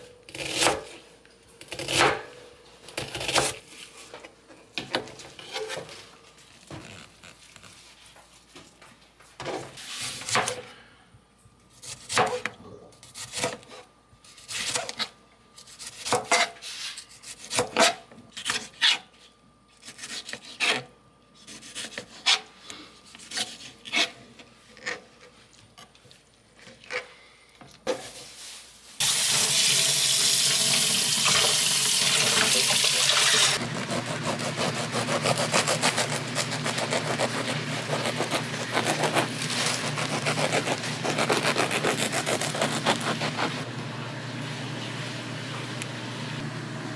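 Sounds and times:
kitchen tap running: 29.0s - 33.6s.

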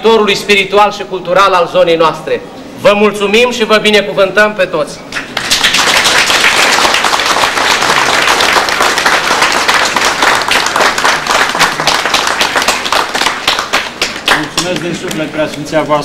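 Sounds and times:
crowd applauding: 5.2s - 15.2s.

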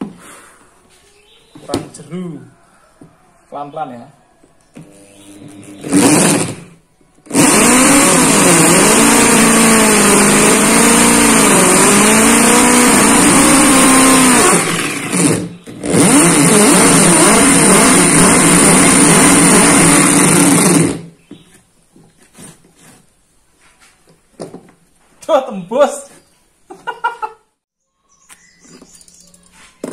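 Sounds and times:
electric drill boring into wood: 4.8s - 21.1s.

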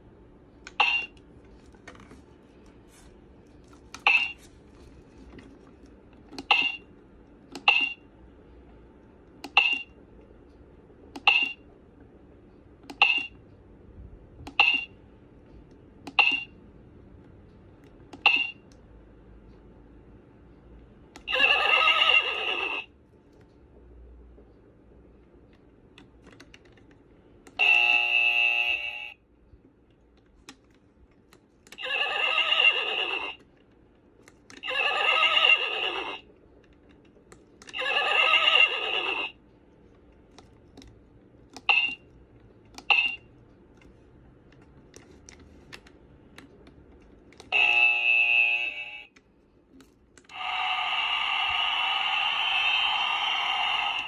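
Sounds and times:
electronic toy sound effects: 21.2s - 22.9s, 31.8s - 33.4s, 34.6s - 36.2s, 37.7s - 39.4s, 50.3s - 54.0s.

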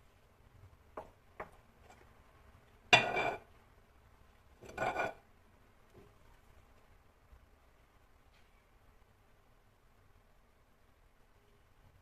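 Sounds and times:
cup scraping glass bowl: 3.0s - 3.5s, 4.6s - 5.2s.

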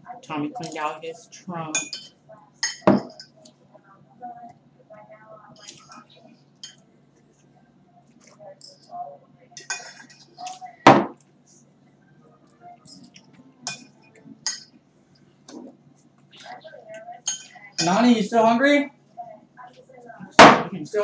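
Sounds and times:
tableware clinks: 1.7s - 3.4s, 9.6s - 11.2s, 12.8s - 14.8s, 17.2s - 18.0s.

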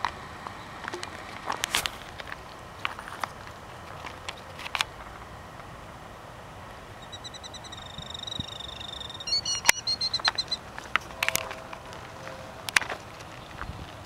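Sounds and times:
footsteps on gravel: 1.1s - 4.8s, 10.2s - 14.0s
bird trilling alarm call: 7.0s - 10.6s.

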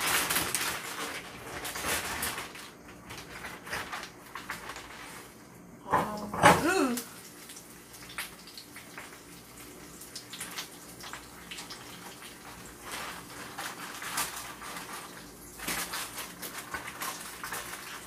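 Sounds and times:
oil crackling: 0.0s - 5.4s, 6.8s - 18.0s
cutlets sizzling in frying oil: 6.8s - 18.0s.

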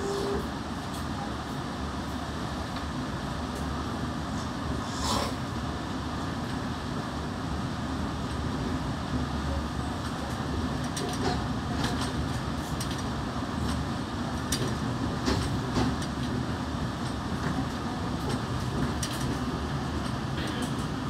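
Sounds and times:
train low rumble: 0.0s - 21.0s.

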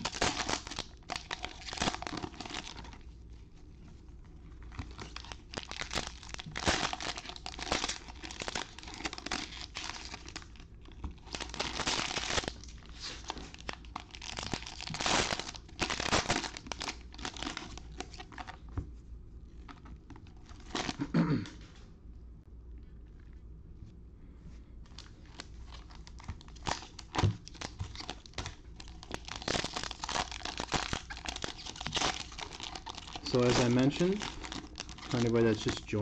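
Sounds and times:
foil wrappers tearing and crinkling: 0.0s - 3.0s, 4.7s - 18.6s, 24.9s - 36.0s.

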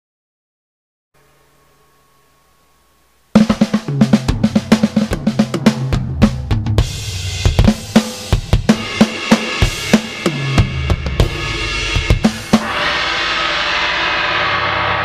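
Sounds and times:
cymbal wash: 1.2s - 5.2s, 6.9s - 15.0s
drum kit groove: 3.3s - 15.0s.

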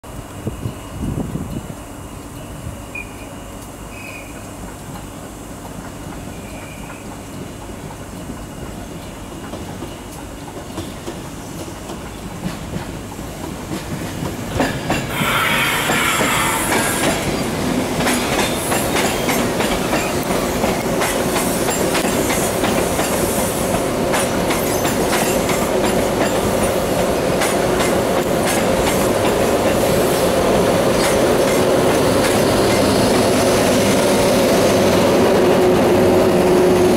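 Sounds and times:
electric locomotive running hum: 0.1s - 36.9s
wheel squeal: 15.1s - 17.5s
wheels clicking over rail joints: 18.0s - 33.4s.

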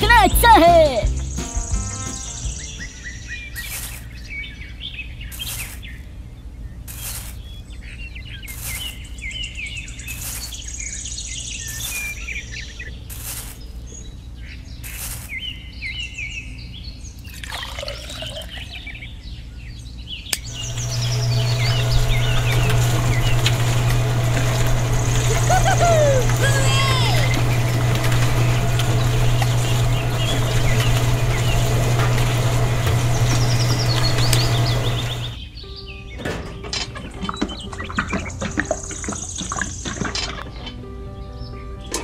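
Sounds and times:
birds chirping: 0.0s - 42.0s
motor switch click: 20.3s - 25.4s
small electric motor humming: 20.4s - 35.4s
sand pouring into tin drum: 20.5s - 35.4s.

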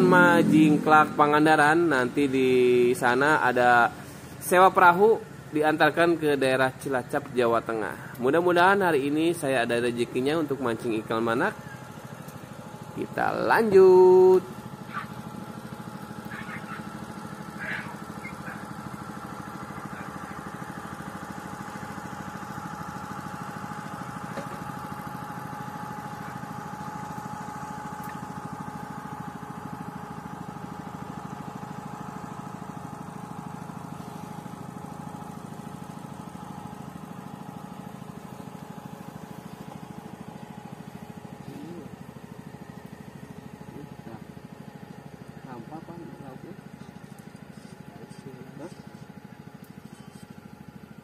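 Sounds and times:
boat motor running: 0.0s - 51.0s.

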